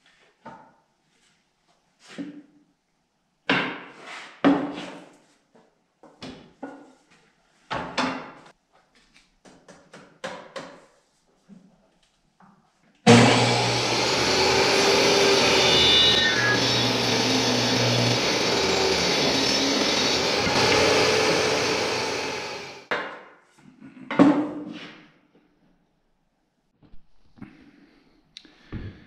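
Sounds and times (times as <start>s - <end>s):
wood knocking on table saw: 13.1s - 22.8s
table saw motor running: 13.1s - 22.9s.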